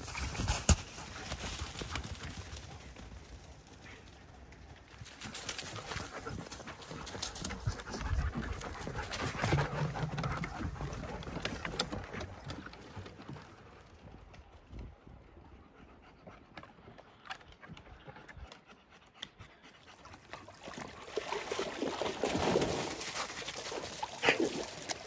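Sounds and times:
paw footfalls on leaves and wood: 0.1s - 3.9s
dogs panting: 0.7s - 21.6s.

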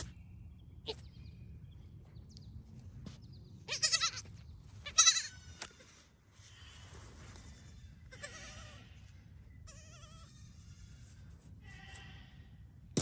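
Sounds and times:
goat kid bleating: 3.6s - 5.9s, 8.0s - 12.6s.

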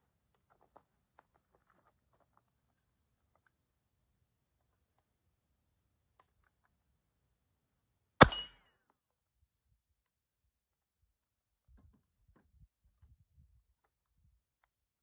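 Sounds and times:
bullet clanging on steel target: 8.2s - 8.6s
suppressed gunshot: 8.2s - 8.6s.

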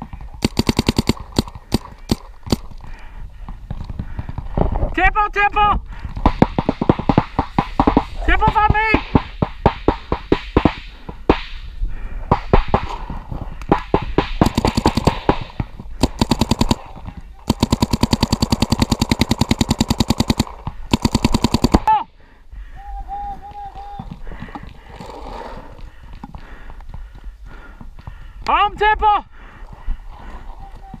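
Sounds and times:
paintball marker firing: 0.4s - 2.8s, 13.7s - 21.9s.

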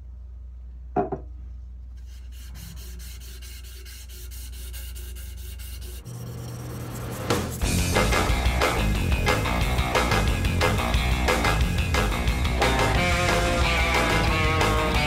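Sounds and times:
knock: 1.0s - 1.3s
sandpaper rasping on wood: 2.0s - 7.6s.

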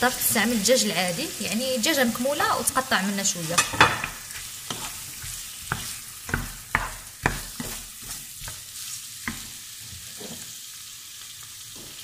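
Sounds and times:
chicken sizzling in a pan: 0.0s - 12.0s
wooden spoon knocking on a pan: 3.6s - 8.6s.

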